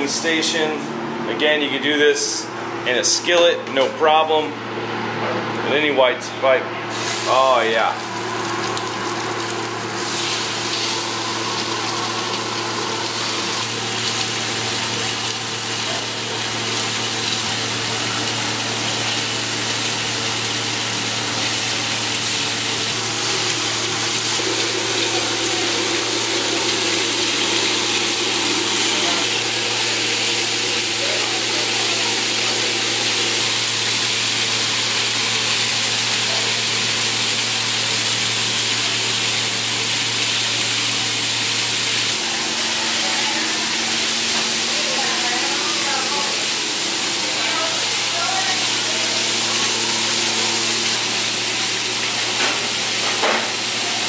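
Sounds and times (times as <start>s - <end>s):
fish sizzling on a griddle: 6.9s - 7.4s, 8.0s - 26.7s, 47.3s - 54.0s.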